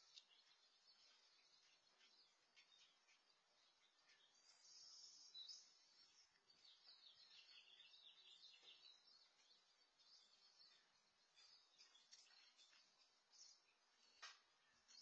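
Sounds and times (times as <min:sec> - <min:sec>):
faint birds chirping: 0:00.0 - 0:15.0.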